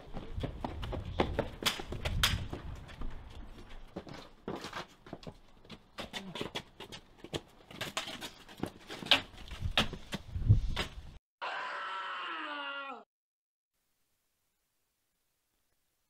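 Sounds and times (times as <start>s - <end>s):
footsteps on paving stones: 0.0s - 11.2s
high pitched cry: 11.4s - 13.1s.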